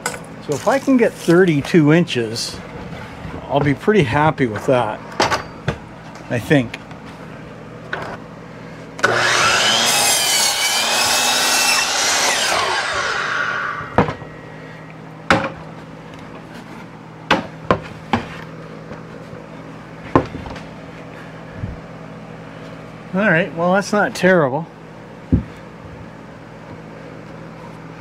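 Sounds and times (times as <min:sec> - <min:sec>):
miter saw cutting wood: 0:09.0 - 0:14.3
knocks of wood on saw table: 0:13.8 - 0:14.2.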